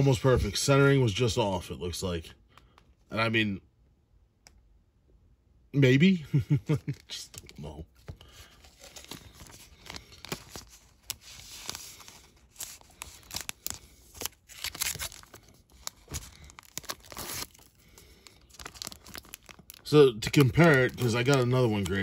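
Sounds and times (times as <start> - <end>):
plastic bag crinkling: 6.5 - 22.0.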